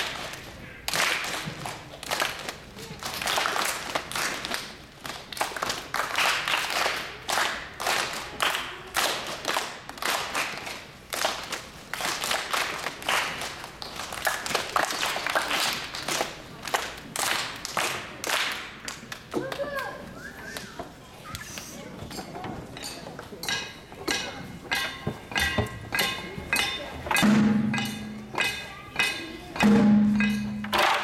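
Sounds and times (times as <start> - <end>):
children clapping: 0.0 - 20.9.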